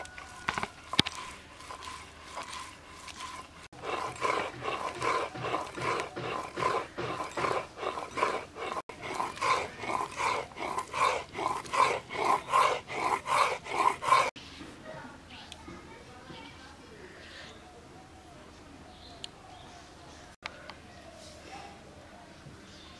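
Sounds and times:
stone grinding scrape: 0:00.0 - 0:14.4.

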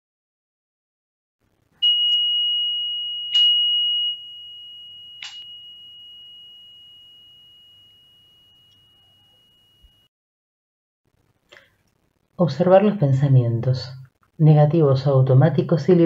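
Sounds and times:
high-pitched meditation chime: 0:01.8 - 0:10.1.

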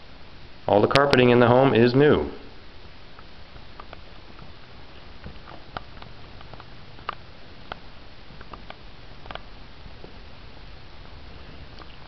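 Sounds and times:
low room tone hum: 0:00.0 - 0:12.0
soft footstep taps and clicks: 0:03.2 - 0:10.2.

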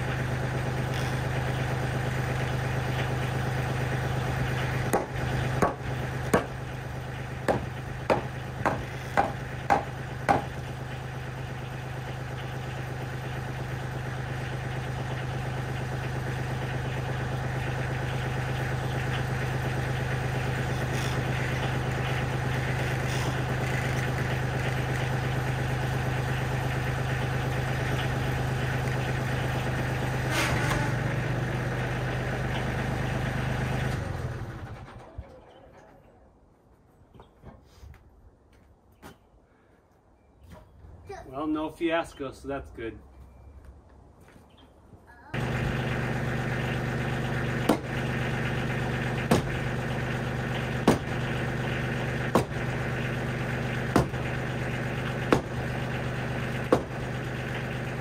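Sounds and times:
diesel tractor idling: 0:00.0 - 0:36.0, 0:45.2 - 0:58.0
sharp knocks: 0:04.9 - 0:06.6, 0:07.5 - 0:10.6, 0:47.6 - 0:48.0, 0:49.2 - 0:49.7, 0:50.8 - 0:51.3, 0:52.3 - 0:52.6, 0:53.9 - 0:54.4, 0:55.2 - 0:55.7, 0:56.6 - 0:57.0.

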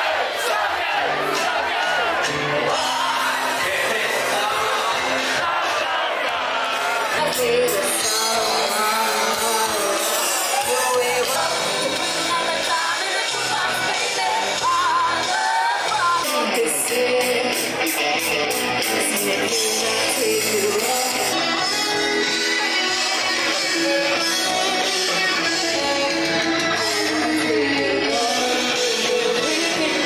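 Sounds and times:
drums: 0:00.0 - 0:30.0
person singing: 0:02.2 - 0:05.6, 0:06.9 - 0:30.0
electric guitar: 0:06.5 - 0:30.0.

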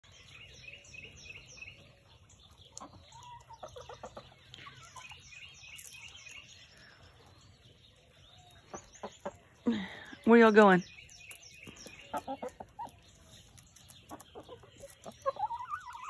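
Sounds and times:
hens clucking: 0:01.7 - 0:05.3, 0:08.6 - 0:10.8, 0:11.6 - 0:16.0.

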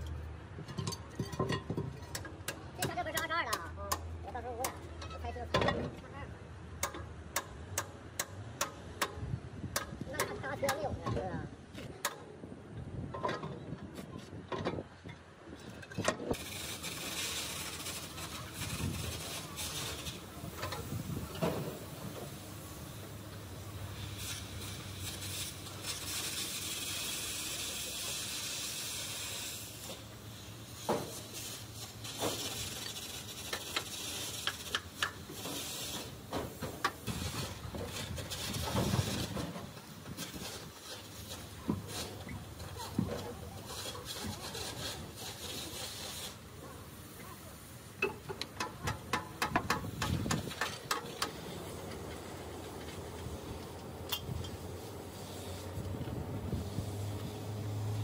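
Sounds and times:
steady hiss: 0:16.3 - 0:58.0.

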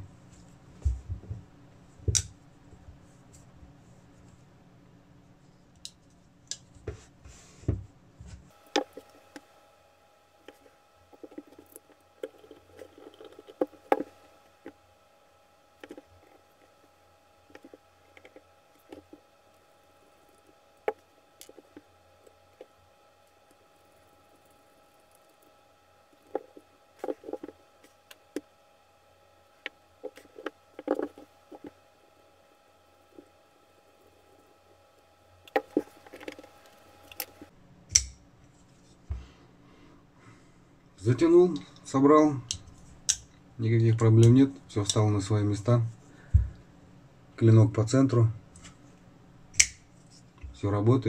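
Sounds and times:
faint steady hum: 0:00.0 - 0:51.0
folding knife parts clicking: 0:49.6 - 0:49.8.

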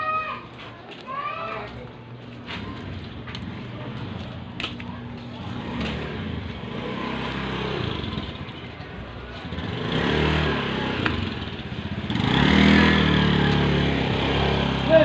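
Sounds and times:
motorcycle engine revving: 0:05.4 - 0:15.0.

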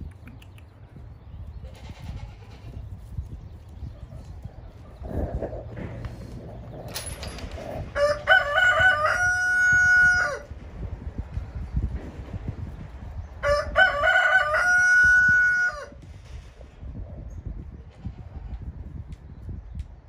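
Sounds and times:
rooster crowing: 0:08.0 - 0:10.5, 0:13.4 - 0:16.0.

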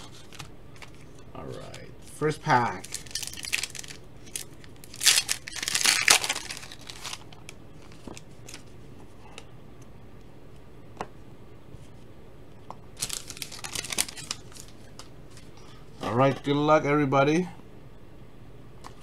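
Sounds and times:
foil wrapper ripping: 0:02.7 - 0:08.6, 0:13.0 - 0:14.9
foil crinkling: 0:02.7 - 0:08.7, 0:13.0 - 0:15.5.

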